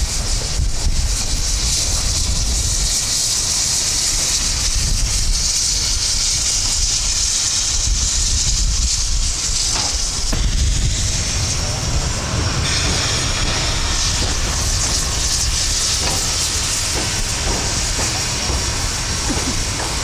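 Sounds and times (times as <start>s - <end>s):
steam hissing: 0.0s - 20.0s
low rumble: 10.3s - 19.0s.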